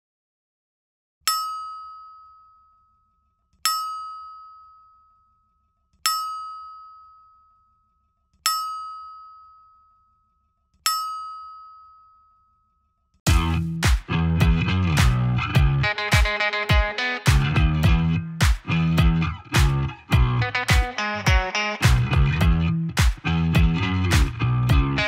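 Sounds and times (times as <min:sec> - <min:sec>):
bell-like ding: 0:01.3 - 0:03.1, 0:03.7 - 0:05.5, 0:06.1 - 0:07.8, 0:08.5 - 0:10.2, 0:10.9 - 0:12.8.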